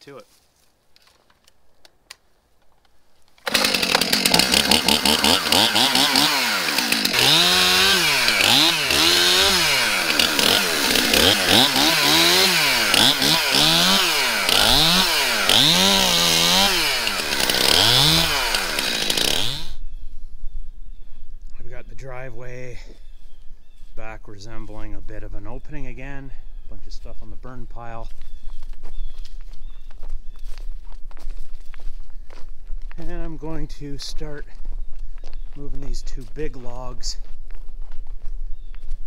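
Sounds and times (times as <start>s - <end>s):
chainsaw cutting branches: 3.4s - 19.8s.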